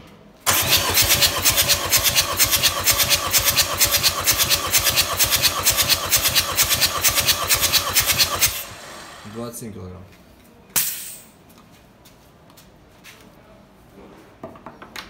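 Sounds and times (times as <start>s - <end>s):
starter motor cranking engine: 0.5s - 9.6s.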